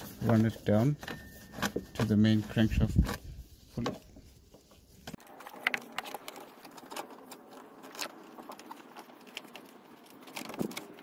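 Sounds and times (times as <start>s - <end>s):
scratchy rustling of gloves: 0.0s - 11.0s.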